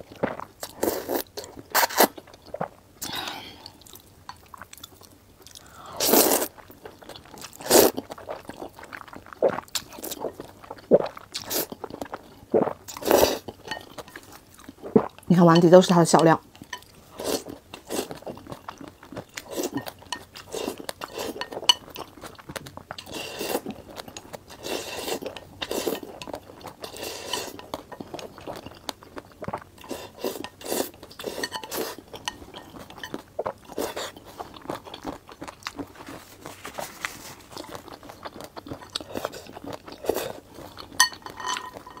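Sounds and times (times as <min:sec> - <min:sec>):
slurping and chewing noodles: 0:00.1 - 0:15.2, 0:16.6 - 0:42.0
chopsticks clinking on bowl: 0:13.6 - 0:14.3, 0:30.4 - 0:33.2, 0:41.0 - 0:42.0.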